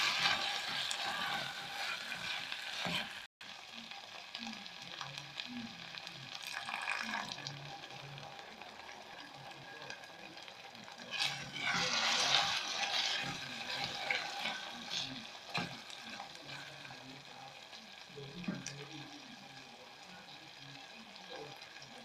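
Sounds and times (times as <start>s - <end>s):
spoon scraping pot: 0.0s - 3.1s, 11.1s - 15.8s
beans sizzling in a pot: 0.0s - 22.0s.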